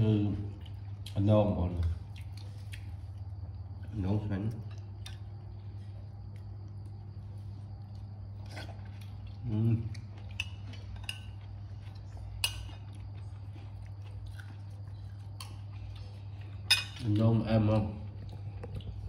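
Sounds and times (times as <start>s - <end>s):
cutlery clinking on dishes: 16.7s - 17.1s.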